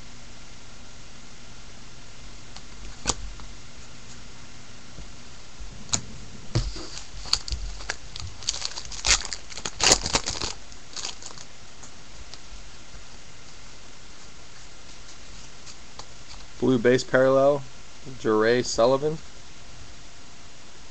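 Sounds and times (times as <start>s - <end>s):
steady hiss: 0.0s - 20.9s
foil wrapper tearing and crinkling: 6.6s - 11.5s.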